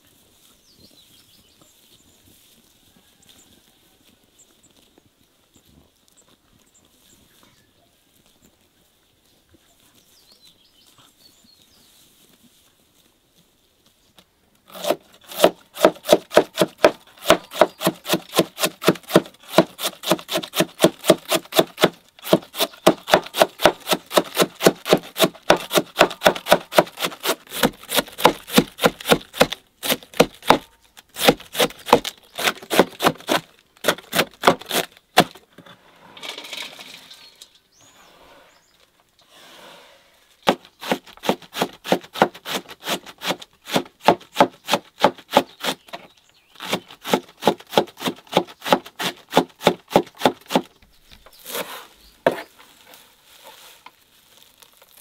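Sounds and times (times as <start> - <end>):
cleaver chopping on wooden board: 14.7 - 35.4, 40.5 - 45.8, 46.6 - 50.7.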